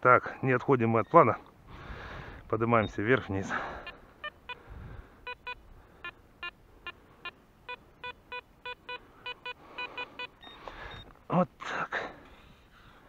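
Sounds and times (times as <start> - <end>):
metal detector beeps: 1.0 - 1.3, 2.8 - 4.6, 5.2 - 11.1.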